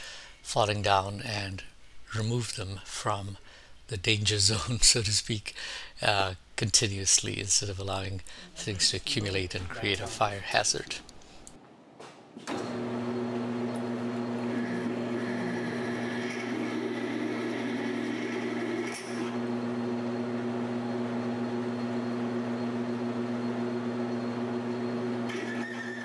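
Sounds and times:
metal lathe humming: 0:12.7 - 0:26.0
drill bit scraping metal: 0:14.2 - 0:19.4.

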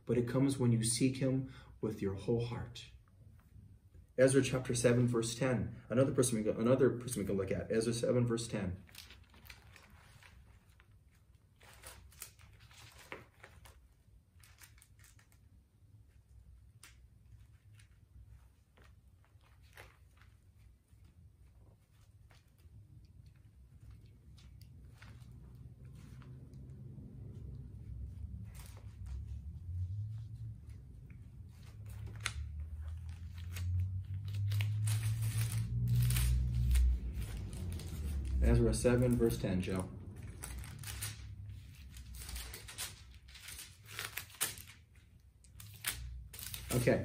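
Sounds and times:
paper pages turning: 0:08.8 - 0:46.9
steady low hum: 0:15.6 - 0:43.8.

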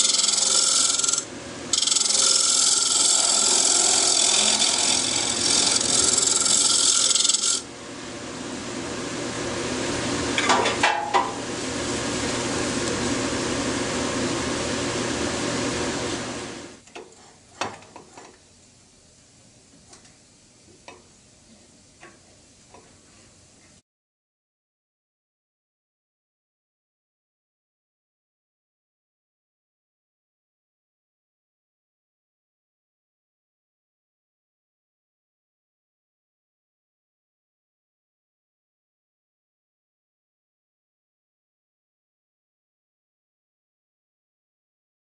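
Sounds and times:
turning tool cutting wood bowl: 0:00.0 - 0:07.7
lathe motor hum: 0:00.0 - 0:10.3.

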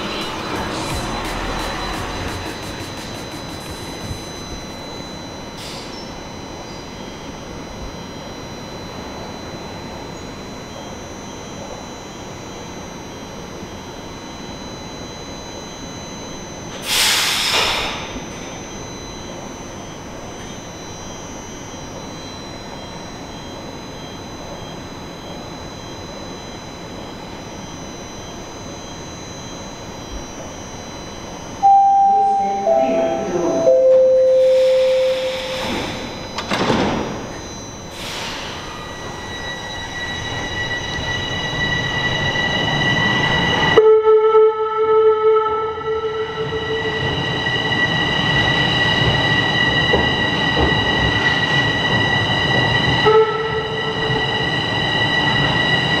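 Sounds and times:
subway train humming: 0:00.0 - 0:56.0
air hiss: 0:16.8 - 0:18.1, 0:34.4 - 0:36.2
descending three-tone door chime: 0:27.4 - 0:43.8
doors sliding shut: 0:34.6 - 0:37.2.

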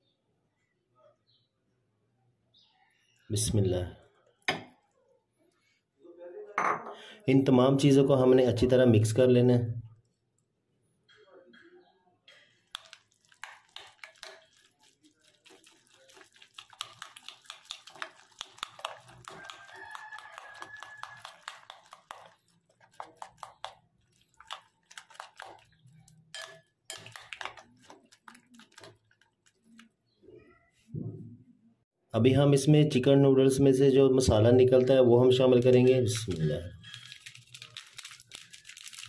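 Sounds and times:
spoon clinking and scraping glass bowl: 0:12.8 - 0:29.6, 0:35.6 - 0:38.5.

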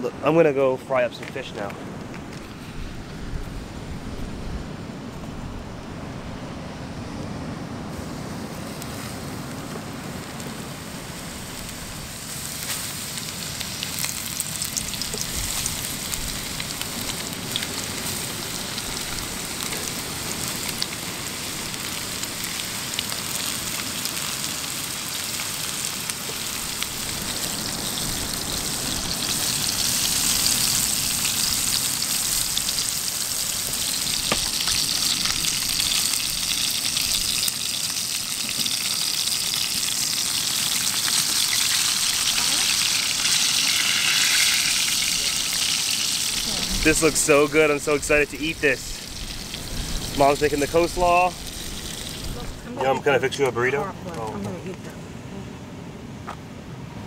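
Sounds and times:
fish frying in hot oil: 0:10.0 - 0:52.4.

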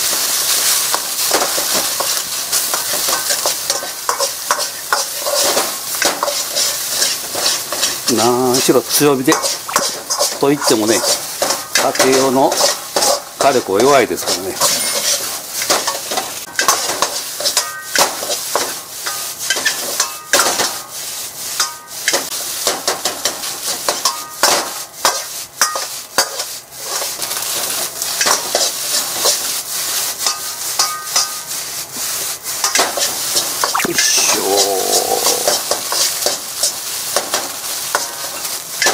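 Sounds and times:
rice sizzling in a wok: 0:00.0 - 0:38.9
metal ladle scraping a wok: 0:02.7 - 0:08.1, 0:09.3 - 0:22.3
metallic rings from a wok: 0:14.6 - 0:15.4.

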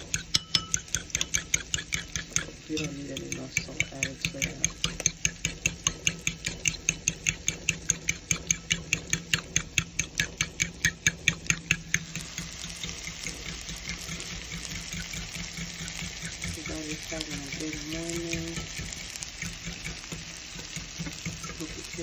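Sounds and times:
meat sizzling in a pan: 0:00.0 - 0:22.0
utensil beating eggs in bowl: 0:00.0 - 0:22.0.

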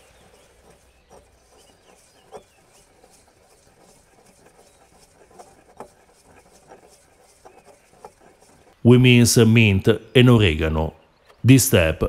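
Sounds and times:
pestle grinding in stone mortar: 0:00.0 - 0:09.6.

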